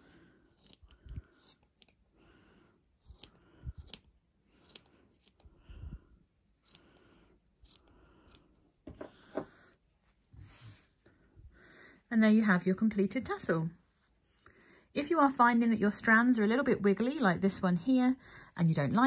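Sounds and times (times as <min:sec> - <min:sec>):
scissors snipping yarn: 0:00.5 - 0:02.0, 0:03.0 - 0:05.5, 0:07.6 - 0:08.6.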